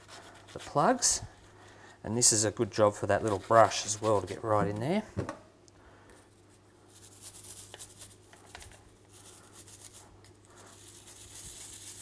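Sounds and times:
brush scrubbing: 0:00.0 - 0:01.2, 0:03.2 - 0:04.5, 0:06.9 - 0:08.3, 0:09.1 - 0:12.0.

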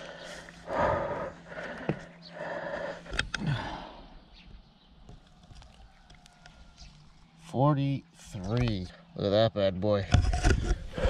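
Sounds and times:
dry leaves and grass rustling: 0:05.0 - 0:08.5.

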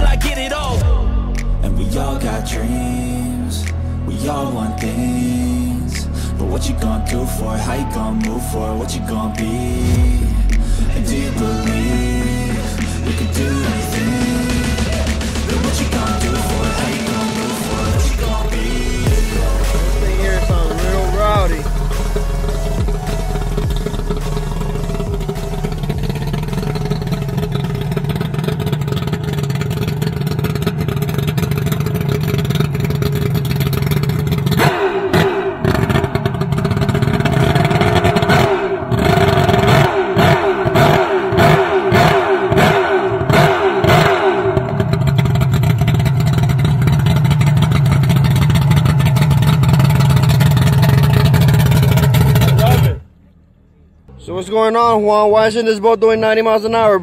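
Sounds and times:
outboard motor revving: 0:00.0 - 0:54.2
outboard motor idling: 0:00.0 - 0:57.0.

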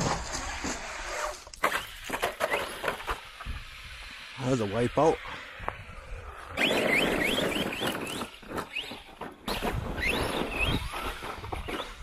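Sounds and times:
tyres scrabbling on dirt: 0:00.0 - 0:03.5, 0:06.3 - 0:12.0.

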